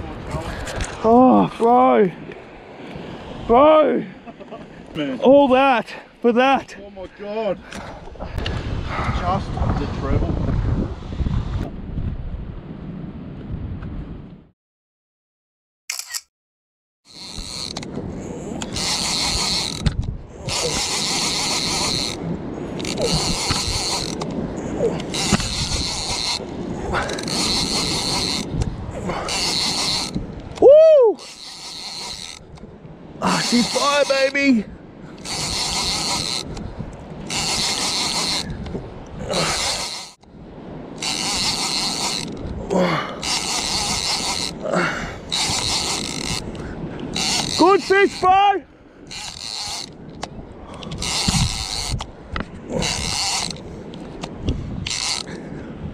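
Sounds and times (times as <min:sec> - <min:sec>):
fishing reel whirring: 0:17.1 - 0:17.9, 0:18.6 - 0:22.2, 0:22.8 - 0:24.3, 0:25.1 - 0:28.6, 0:29.2 - 0:32.6, 0:33.3 - 0:34.4, 0:35.2 - 0:36.6, 0:37.3 - 0:38.6, 0:39.3 - 0:40.2, 0:41.0 - 0:42.4, 0:43.2 - 0:44.6, 0:45.2 - 0:48.4, 0:49.1 - 0:52.1, 0:52.7 - 0:53.6, 0:54.8 - 0:55.3.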